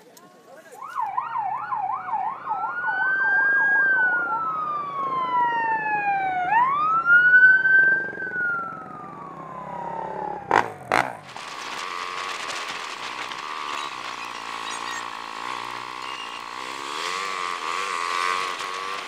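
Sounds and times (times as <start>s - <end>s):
electronic siren yelp and wail: 0.8s - 10.5s.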